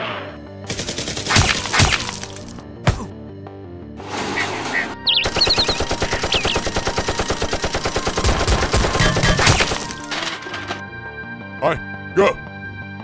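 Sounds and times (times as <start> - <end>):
rapid automatic gunfire: 0.7 - 2.1, 5.1 - 10.0.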